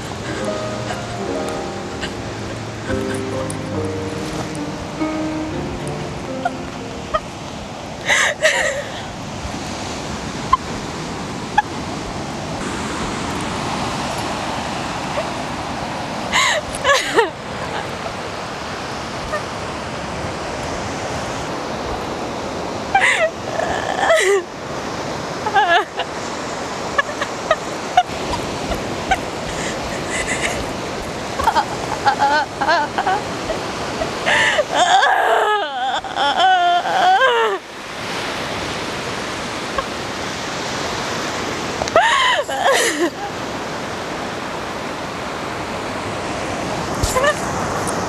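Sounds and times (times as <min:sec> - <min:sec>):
wavering voice: 0:00.0 - 0:09.0, 0:31.4 - 0:37.7
woman crying: 0:00.0 - 0:09.2, 0:16.3 - 0:18.2, 0:22.9 - 0:24.6, 0:25.4 - 0:26.2, 0:26.8 - 0:37.7, 0:41.9 - 0:43.5, 0:47.0 - 0:47.5
surf washing onto beach: 0:00.0 - 0:48.0.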